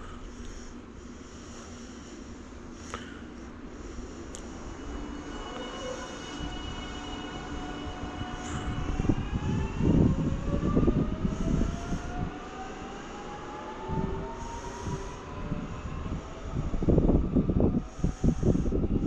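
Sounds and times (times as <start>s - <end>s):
electric train motor whine: 4.4s - 19.0s.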